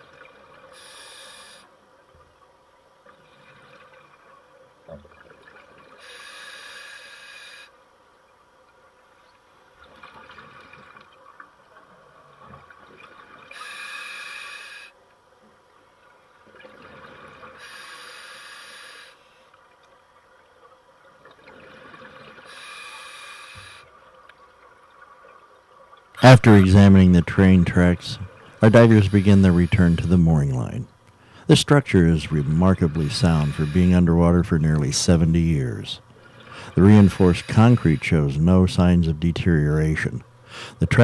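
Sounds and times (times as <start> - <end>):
hissing regulator inhalations: 0.7 - 1.7, 6.0 - 7.8, 13.5 - 15.0, 17.6 - 19.5, 22.4 - 23.9, 28.4 - 30.2, 31.1 - 34.2, 36.2 - 38.4, 40.5 - 40.8.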